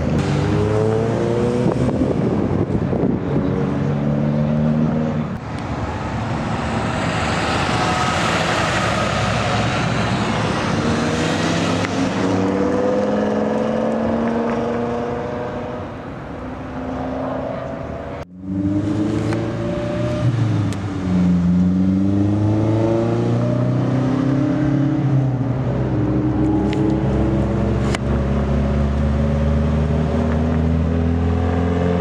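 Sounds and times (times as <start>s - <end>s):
car engines accelerating: 0.0s - 32.0s
loud rushing noise: 5.3s - 14.4s.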